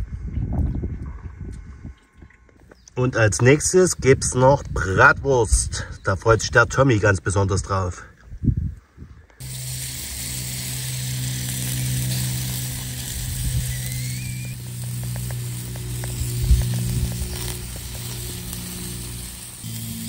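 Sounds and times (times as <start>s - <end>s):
sausages sizzling on a grill: 9.4s - 20.0s.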